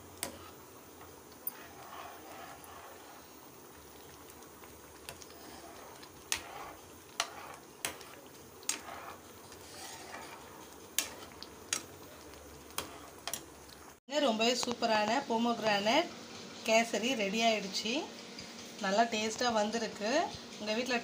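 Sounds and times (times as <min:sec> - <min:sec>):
spoon stirring thick mixture: 0:00.0 - 0:14.0
low hiss of cooking mixture: 0:00.0 - 0:21.0.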